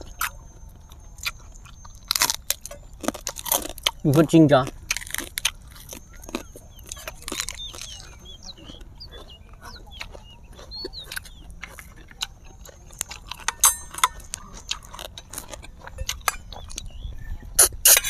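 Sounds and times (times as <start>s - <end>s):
chewing and mouth smacks: 0.0s - 18.0s.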